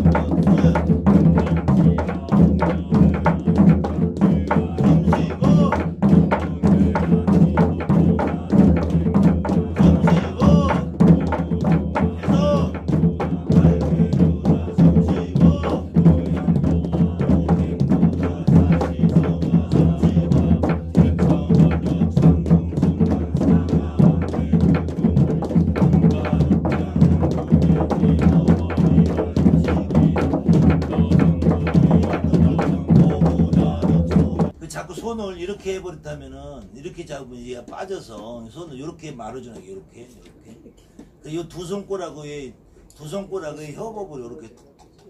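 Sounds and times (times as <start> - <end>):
barrel drum beaten with sticks: 0.0 - 34.6.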